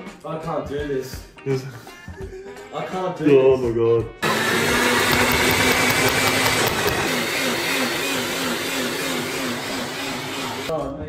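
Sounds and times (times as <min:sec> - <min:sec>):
blender running: 0:04.2 - 0:10.7.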